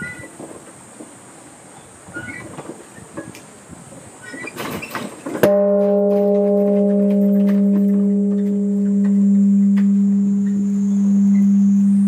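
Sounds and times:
large bronze bell ringing: 5.4s - 12.0s.

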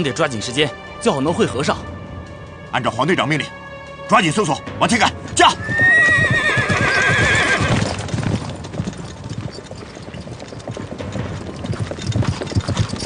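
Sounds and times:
horses galloping on dirt: 5.3s - 13.0s
horse whinnying: 5.5s - 8.1s.

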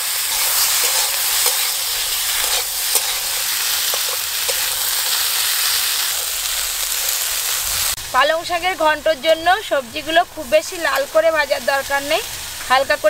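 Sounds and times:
vegetables sizzling in oil: 0.0s - 13.0s
spatula clicking on pan: 0.3s - 5.2s.

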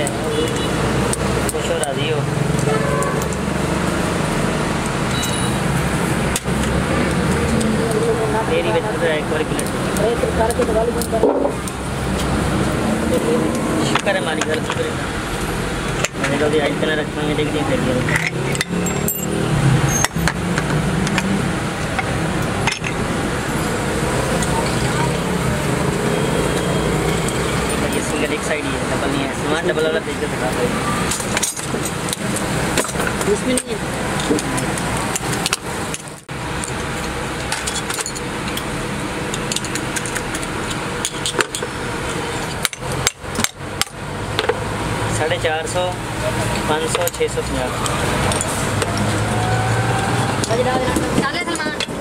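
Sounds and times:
steady background noise: 0.0s - 52.0s
workshop background noise: 0.0s - 52.0s
metal parts clinking: 18.0s - 20.1s, 37.4s - 38.7s
metal parts clicking and clinking: 18.0s - 20.4s, 31.1s - 38.7s, 39.3s - 41.7s.

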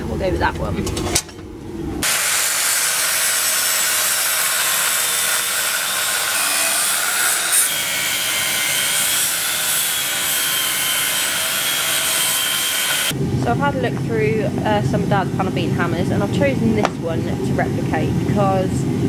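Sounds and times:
angle grinder cutting steel: 2.0s - 13.1s.

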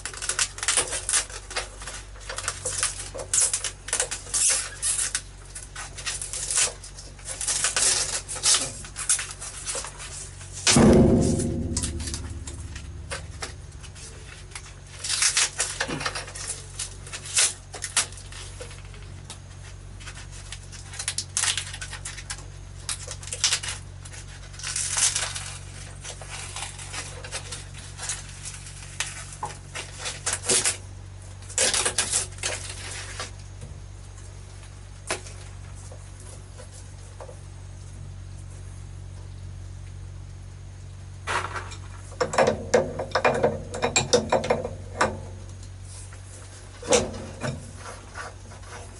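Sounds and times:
tape being peeled and torn: 0.0s - 30.8s, 31.4s - 33.5s
steady low hum: 0.0s - 48.9s.

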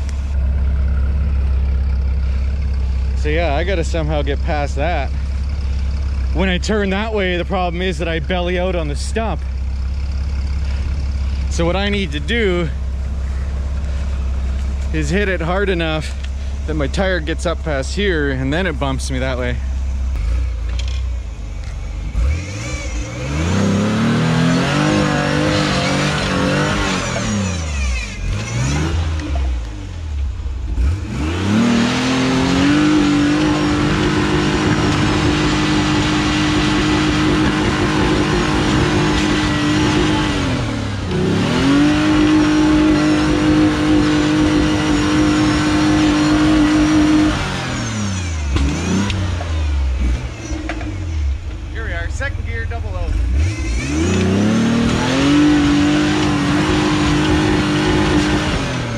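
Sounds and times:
engine revving hard: 22.0s - 58.9s.

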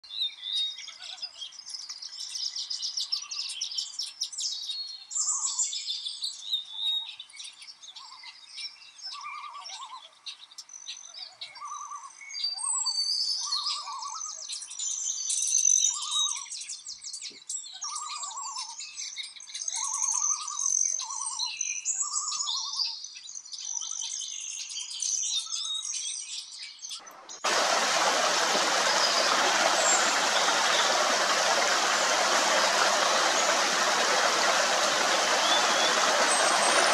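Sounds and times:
birds chirping and trilling: 26.7s - 36.9s
stream splashing over rocks: 27.4s - 36.9s
low repeated bird note: 27.5s - 36.9s.

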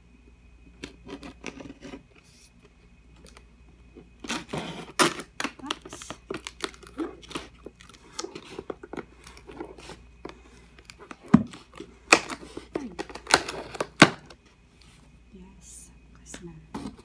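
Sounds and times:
knife cutting tape and cardboard: 4.2s - 14.4s.

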